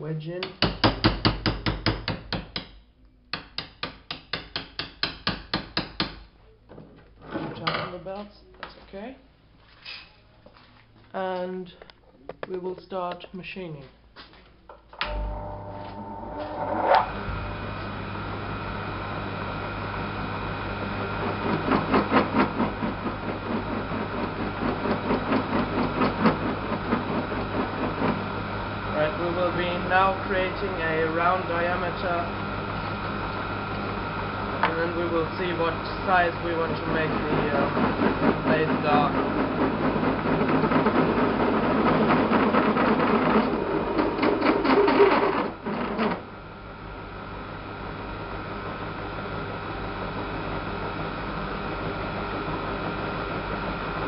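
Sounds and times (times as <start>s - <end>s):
lathe motor hum: 15.0s - 54.0s
lathe tool scraping metal: 15.1s - 17.2s, 34.8s - 46.2s.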